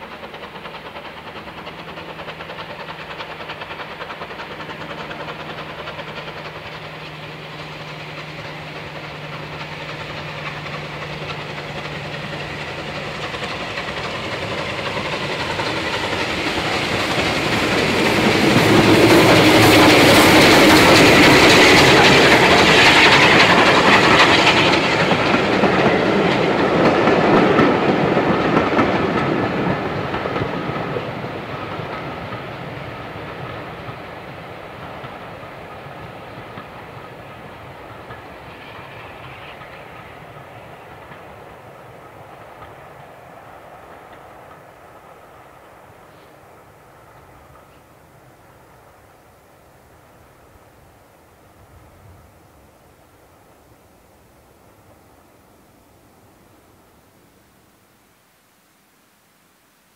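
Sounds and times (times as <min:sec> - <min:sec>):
steam locomotive exhaust: 0:00.0 - 0:57.0
wheels clattering over rail joints: 0:00.1 - 0:43.2.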